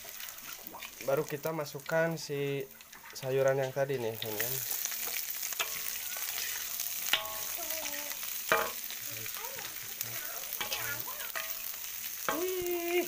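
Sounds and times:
vegetables sizzling in a wok: 0.0 - 13.0
spatula knocking and scraping pan: 5.0 - 7.6, 8.5 - 8.9.

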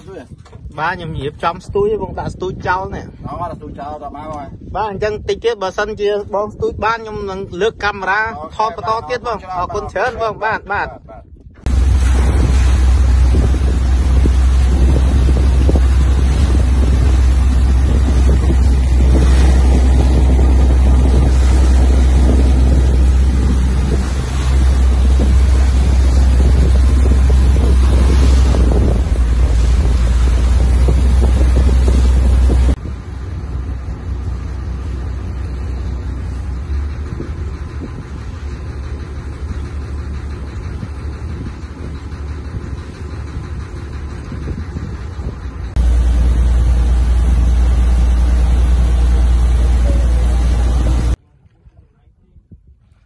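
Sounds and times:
wind buffeting microphone: 0.0 - 53.0
boat engine running: 3.5 - 53.0
steady low hum: 11.2 - 51.2
water rushing past hull: 11.6 - 53.0.

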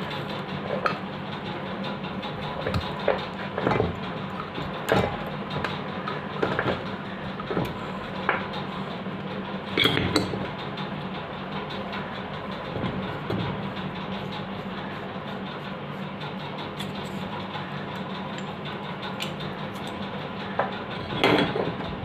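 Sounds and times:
steady low hum: 0.0 - 22.0
metal clanks of bearing puller: 9.7 - 10.4, 18.0 - 21.9.

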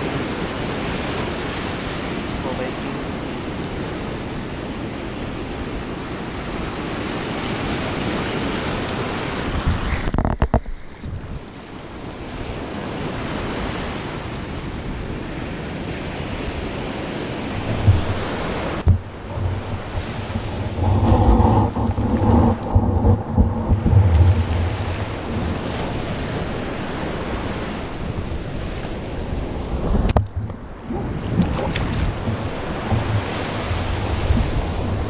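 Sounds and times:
surf washing up the shore: 0.0 - 35.0
wind on the microphone: 0.0 - 35.0
low thumps: 18.8 - 25.6, 30.0 - 35.0.

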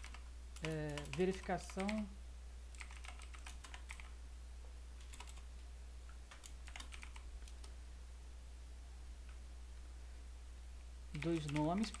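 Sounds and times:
keyboard typing: 0.0 - 2.1, 2.7 - 4.2, 5.0 - 5.5, 6.3 - 7.8, 11.1 - 12.0
steady low hum: 0.0 - 12.0.

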